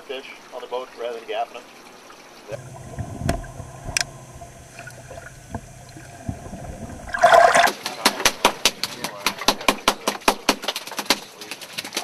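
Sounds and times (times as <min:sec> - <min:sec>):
water rushing: 0:00.0 - 0:09.4
underwater low hum: 0:02.0 - 0:07.7
faint clicks underwater: 0:02.5 - 0:12.0.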